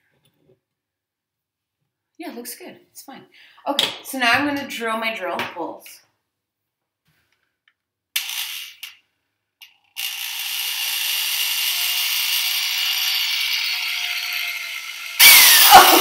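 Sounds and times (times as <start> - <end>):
electric drill running: 9.9 - 16.0.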